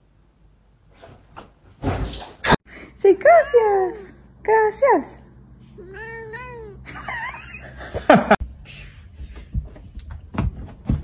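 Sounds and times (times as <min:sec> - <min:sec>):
cat meowing: 0:05.8 - 0:06.9
dull thumps: 0:09.5 - 0:11.0.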